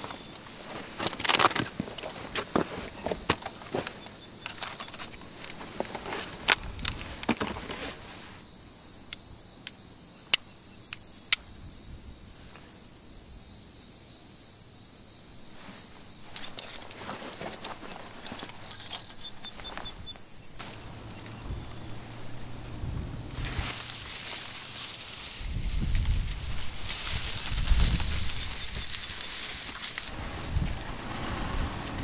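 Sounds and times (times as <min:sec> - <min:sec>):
dry grass crackling and rustling: 0:00.0 - 0:08.4, 0:15.4 - 0:32.0.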